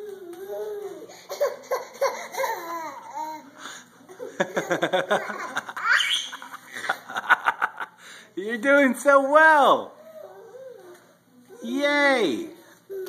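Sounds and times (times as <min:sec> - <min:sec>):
toddler babbling and squealing: 0:00.0 - 0:03.5
toddler laughing: 0:00.5 - 0:03.5, 0:04.1 - 0:07.1.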